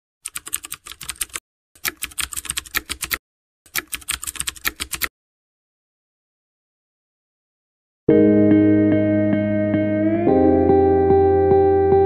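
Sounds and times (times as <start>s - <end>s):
rapid keyboard key clicks: 0.2s - 5.1s.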